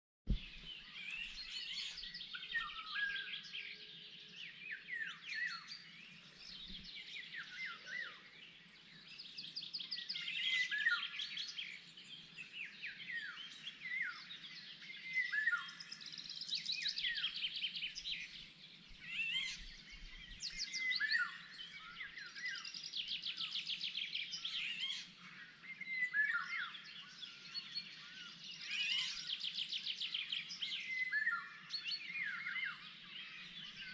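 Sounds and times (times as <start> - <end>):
fluty whistled bird phrases: 0.3 - 4.0, 9.7 - 11.8, 12.6 - 18.4, 19.0 - 25.0, 25.7 - 33.9
songbirds singing: 0.3 - 33.9.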